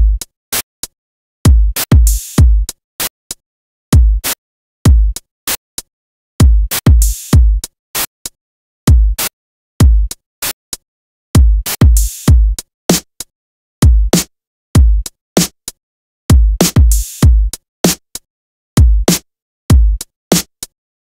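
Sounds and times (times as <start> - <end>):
kick drum thumps: 1.5 - 2.7, 4.0 - 4.2, 4.9 - 5.2, 6.4 - 7.6, 8.9 - 9.2, 9.8 - 10.1, 11.4 - 12.6, 13.8 - 14.2, 14.8 - 15.0, 16.3 - 17.5, 18.8 - 19.1, 19.7 - 20.0.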